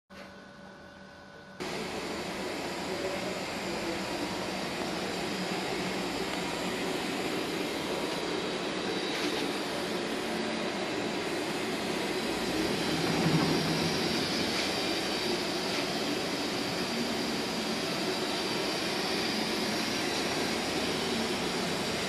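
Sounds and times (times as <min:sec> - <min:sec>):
machine whir and hiss: 0:00.2 - 0:22.0.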